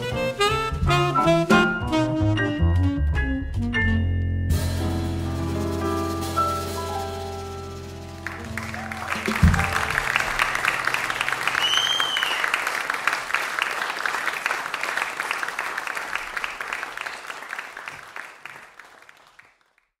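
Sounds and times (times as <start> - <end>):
audience applause: 8.2 - 19.9
short whistle: 11.6 - 12.5.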